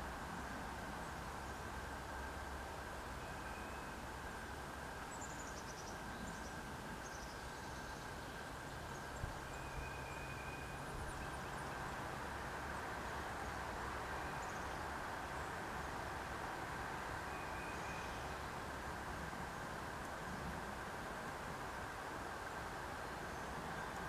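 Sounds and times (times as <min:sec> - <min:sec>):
outdoor background hiss: 0:00.0 - 0:24.0
faint high birdsong: 0:03.0 - 0:04.0, 0:05.1 - 0:15.6, 0:17.2 - 0:18.5.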